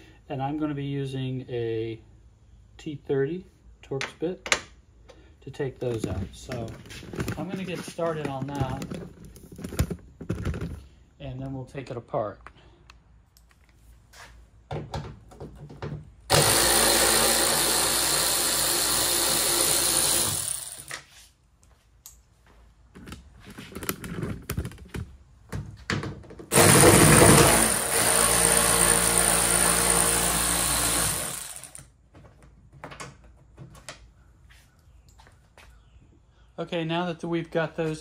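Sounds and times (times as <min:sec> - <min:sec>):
electric ratchet running: 0:16.3 - 0:21.0, 0:26.5 - 0:31.9.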